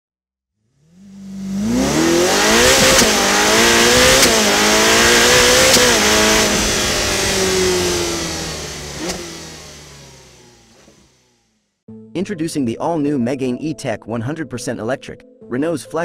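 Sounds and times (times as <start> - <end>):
racing car engine accelerating: 0.6 - 11.5
sharp crack at gear shift: 2.7 - 3.2, 9.0 - 9.5, 10.4 - 11.2.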